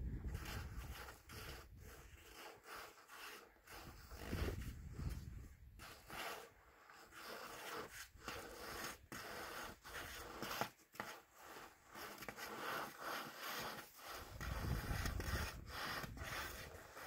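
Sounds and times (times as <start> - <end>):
body scraping against rock: 0.1 - 17.0.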